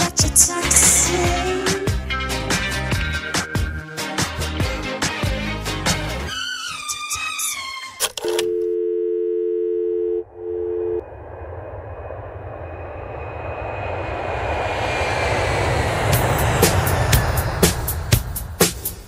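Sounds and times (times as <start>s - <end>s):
song beats: 0.0s - 5.3s
telephone dial tone: 8.1s - 11.0s
rising whooshing noise: 11.0s - 19.0s.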